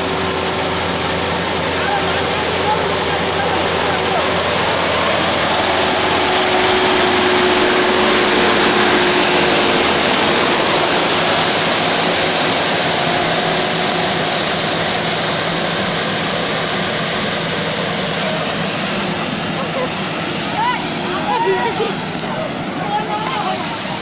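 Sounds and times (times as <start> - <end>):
combine harvester engine and threshing: 0.0 - 24.0.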